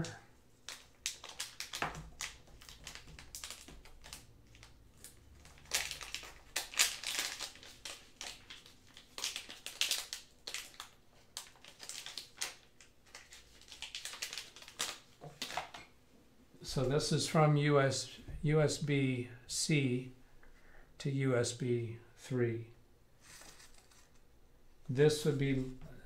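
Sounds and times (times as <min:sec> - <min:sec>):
plastic packaging crinkling: 0:00.6 - 0:15.8, 0:23.2 - 0:24.3.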